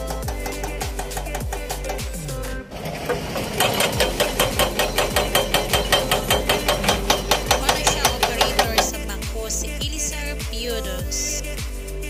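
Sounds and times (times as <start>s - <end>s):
low machine hum: 0.0s - 12.0s
hydraulic breaker hammering rock: 2.8s - 8.9s.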